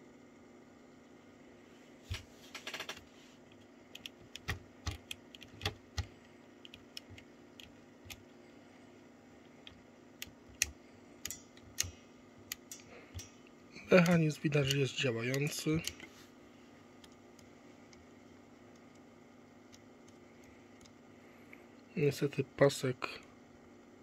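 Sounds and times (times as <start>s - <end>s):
cassette mechanism clicks and taps: 2.6s - 8.3s, 9.4s - 16.1s.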